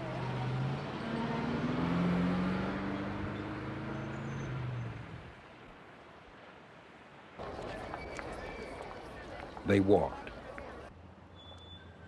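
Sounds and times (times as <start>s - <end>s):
bus engine pulling away: 0.0s - 5.3s.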